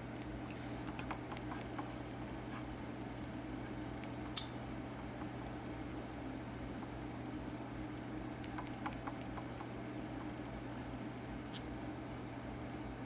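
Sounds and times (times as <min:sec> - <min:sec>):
low hum and hiss: 0:00.0 - 0:13.0
sharp short click: 0:04.4 - 0:04.6.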